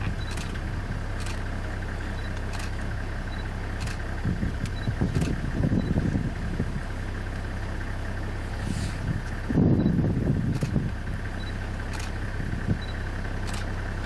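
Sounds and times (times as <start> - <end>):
low engine rumbles: 0.0 - 14.0
vehicle engine idling: 0.0 - 14.0.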